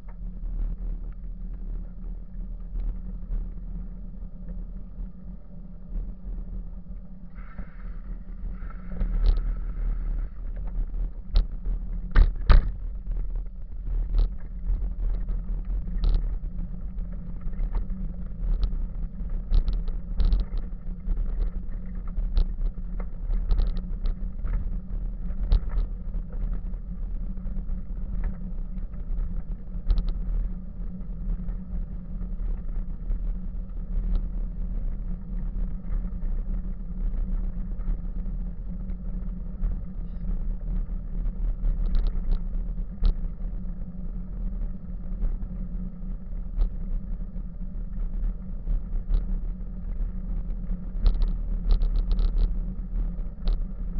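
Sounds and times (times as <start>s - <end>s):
bike clicks and rattles over bumps: 10.5s - 26.8s.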